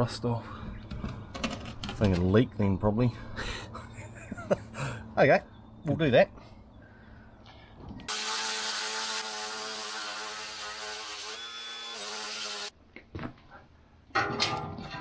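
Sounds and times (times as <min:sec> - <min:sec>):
angle grinder grinding steel: 0:08.1 - 0:12.7.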